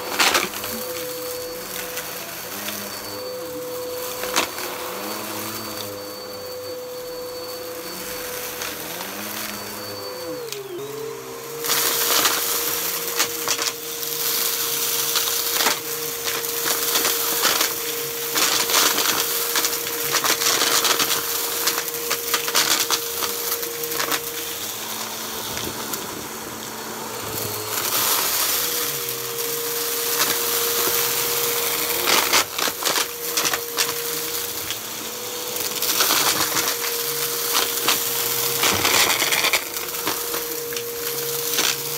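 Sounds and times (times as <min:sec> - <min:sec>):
vacuum cleaner motor whine: 0:00.0 - 0:41.9.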